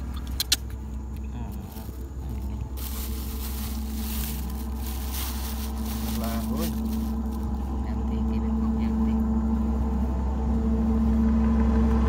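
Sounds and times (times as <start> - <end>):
steady low hum: 0.0 - 12.0
plastic bag crinkling: 1.5 - 7.7.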